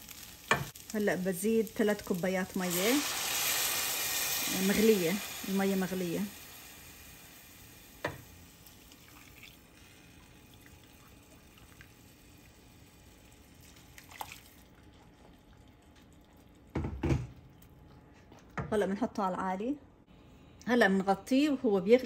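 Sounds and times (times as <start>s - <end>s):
water pouring and splashing: 8.7s - 12.1s, 13.5s - 16.7s.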